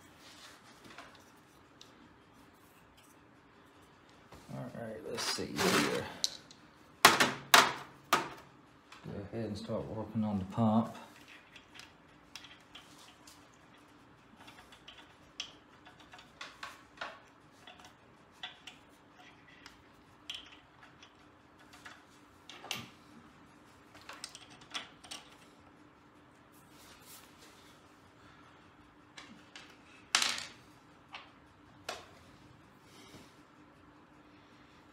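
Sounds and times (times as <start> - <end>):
steady low hum: 0.0 - 34.9.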